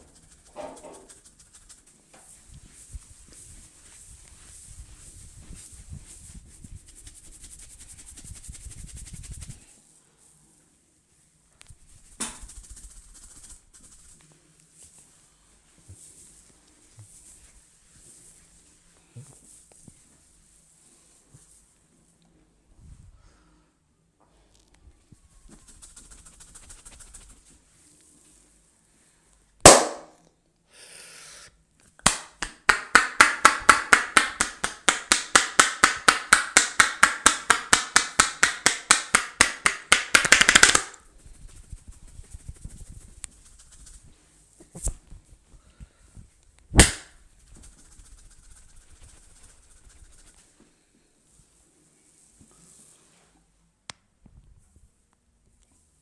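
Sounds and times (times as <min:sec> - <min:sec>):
hands slapping head: 0:29.7 - 0:30.1, 0:32.0 - 0:41.8, 0:46.7 - 0:49.3.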